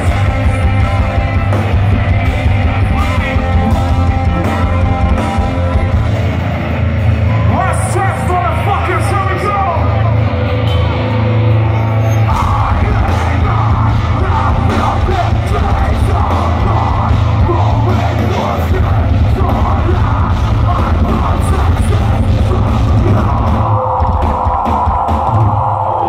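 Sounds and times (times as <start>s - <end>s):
drums: 0.0s - 26.0s
guitars: 0.0s - 26.0s
person singing into microphone: 12.3s - 23.7s.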